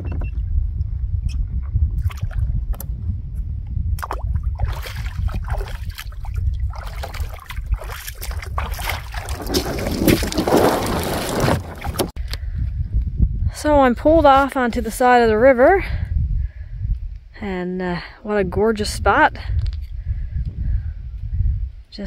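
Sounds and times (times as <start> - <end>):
wind rumbling on microphone: 0.0 - 22.0
water splashing: 4.0 - 12.1.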